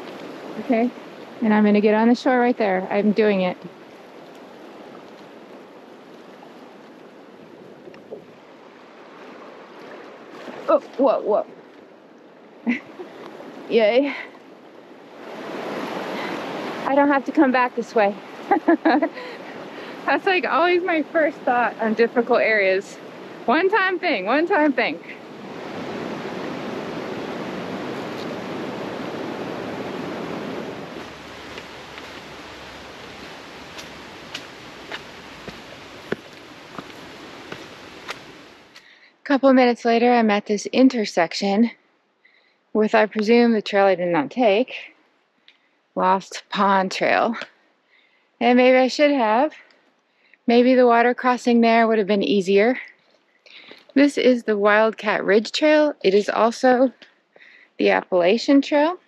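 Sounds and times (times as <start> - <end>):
river water rushing over rocks: 15.1 - 38.8
faint ticks: 45.4 - 45.7.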